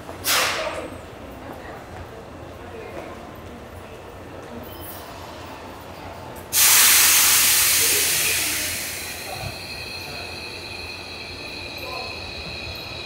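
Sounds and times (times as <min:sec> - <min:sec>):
faint high tones from train: 0:04.5 - 0:13.0
compressed air hissing: 0:06.6 - 0:09.4.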